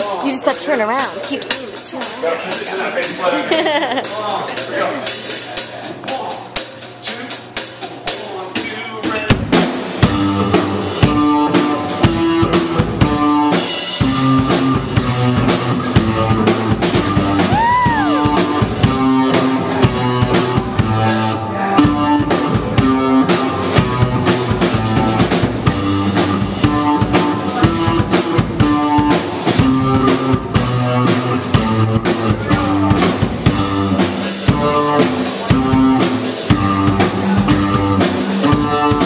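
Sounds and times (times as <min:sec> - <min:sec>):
live rock band playing: 0:00.0 - 0:39.0
drum kit with cymbal ticks: 0:00.1 - 0:39.0
bass guitar: 0:09.1 - 0:39.0
electric guitar: 0:10.0 - 0:39.0.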